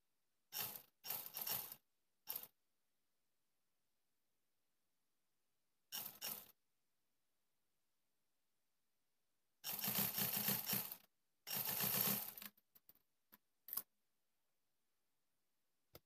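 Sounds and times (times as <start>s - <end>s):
sewing machine stitching: 0.5s - 2.5s, 5.9s - 6.6s, 9.6s - 12.6s.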